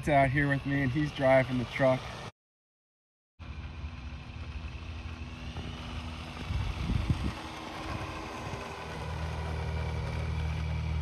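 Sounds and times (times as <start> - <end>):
rc truck electric motor running: 0.0 - 2.3, 3.4 - 11.0
wind rumble on microphone: 6.0 - 8.6.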